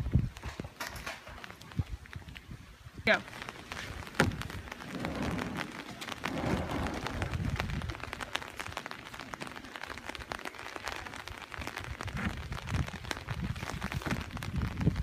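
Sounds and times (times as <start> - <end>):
footsteps on wet pavement: 1.4 - 15.0
plastic kayak scraping on concrete: 3.3 - 8.6.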